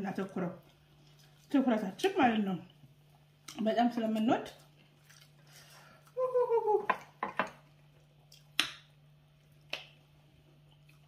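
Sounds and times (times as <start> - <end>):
low electrical hum: 0.0 - 11.0
eating clicks and smacks: 8.2 - 10.0.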